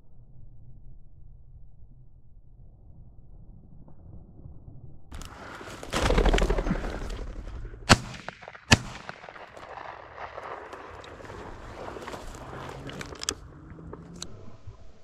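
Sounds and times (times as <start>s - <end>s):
shotgun shots: 7.8s - 11.9s.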